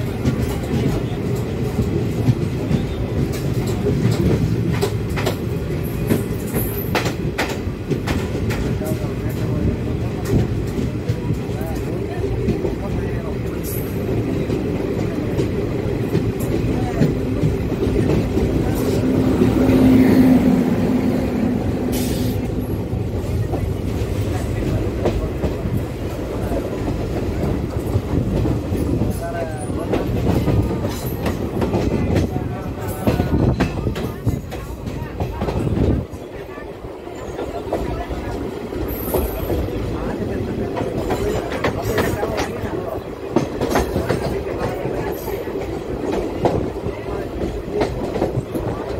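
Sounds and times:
train coach deep rumble: 0.0 - 48.9.

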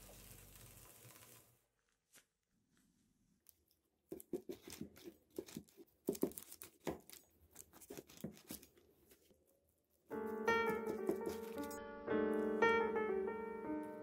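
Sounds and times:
knife cutting crackly sandwich: 4.1 - 9.2, 10.6 - 11.7
piano music: 10.1 - 14.0.

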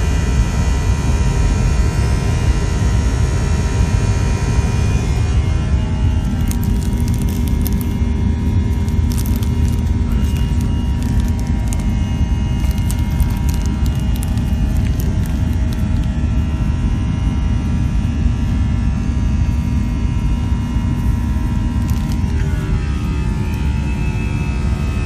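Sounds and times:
cabin drone of engines and airflow: 0.0 - 25.0
faint whining tones: 0.0 - 25.0.

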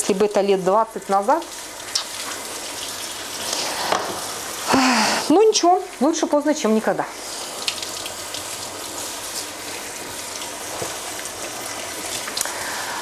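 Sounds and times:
tap running into sink: 3.5 - 4.3.

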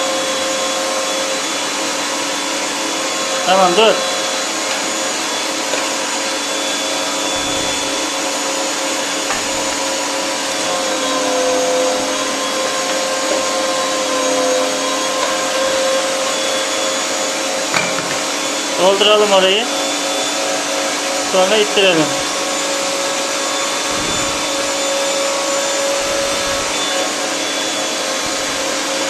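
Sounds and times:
meat grinder motor whining: 0.0 - 29.0.

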